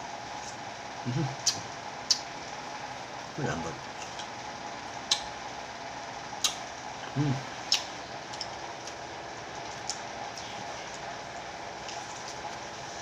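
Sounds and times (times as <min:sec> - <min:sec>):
steady background hum: 0:00.0 - 0:13.0
biting and chewing clicks: 0:05.0 - 0:05.3, 0:06.4 - 0:06.6, 0:07.7 - 0:09.0, 0:09.6 - 0:11.1.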